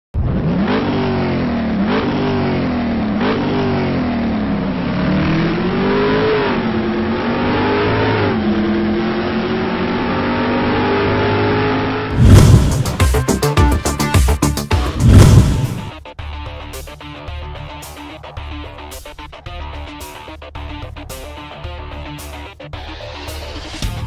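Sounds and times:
car engine accelerating: 0:00.2 - 0:16.0.

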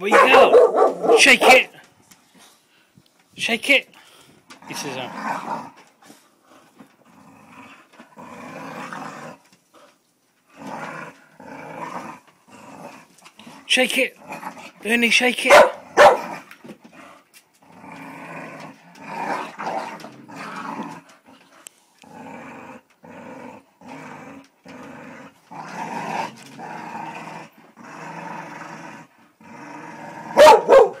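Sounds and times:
dog barking loudly: 0:00.0 - 0:01.7, 0:15.4 - 0:16.3, 0:30.3 - 0:31.0
dogs play-growling: 0:04.4 - 0:14.8, 0:15.8 - 0:31.0.

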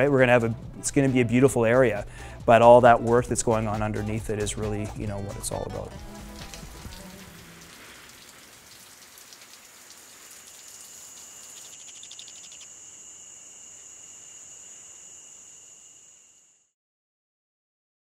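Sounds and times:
rain pattering: 0:06.0 - 0:12.6
thin high steady tone: 0:10.4 - 0:16.7.

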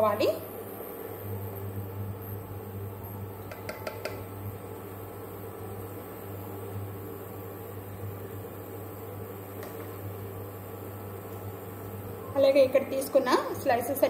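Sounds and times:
cooling fan running: 0:00.0 - 0:14.0
induction cooktop humming: 0:00.0 - 0:14.0.

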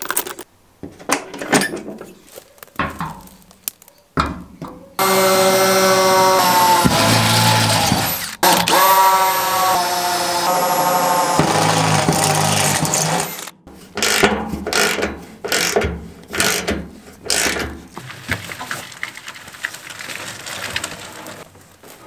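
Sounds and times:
cordless drill boring through steel: 0:05.0 - 0:14.2
ratchet wrench clicking: 0:14.0 - 0:15.8.

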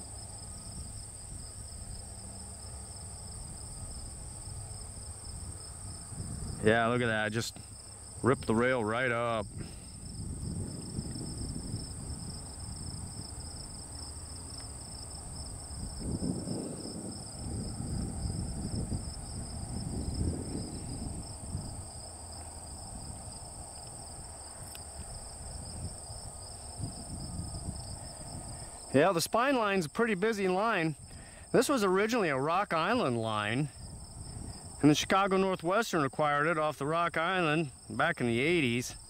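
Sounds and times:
insects trilling: 0:00.0 - 0:39.0
low rumbling noise: 0:01.4 - 0:29.1.

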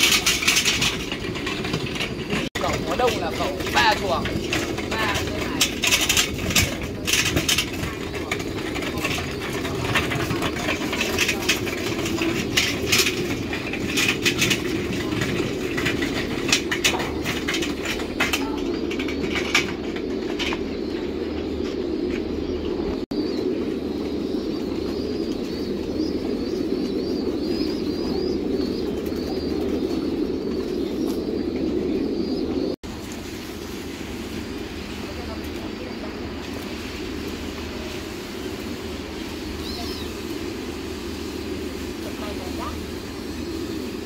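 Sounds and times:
sharp clatters and rattles: 0:00.0 - 0:22.2
pigeons cooing: 0:00.0 - 0:44.0.

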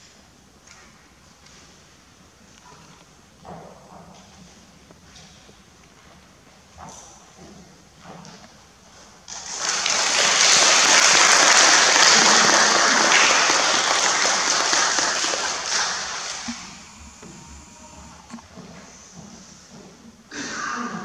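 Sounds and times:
audience applauding: 0:09.3 - 0:18.4.

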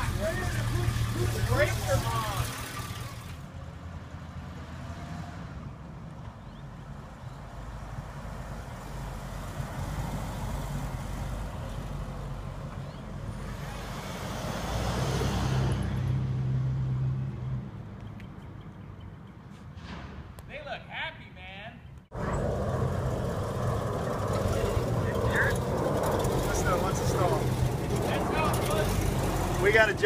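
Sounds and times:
car engine driving by: 0:00.0 - 0:05.8, 0:22.1 - 0:30.0.

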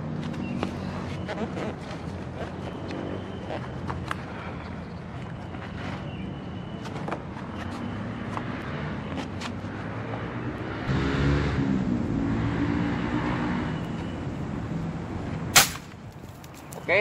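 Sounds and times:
vehicle engine passing by: 0:07.8 - 0:15.5.

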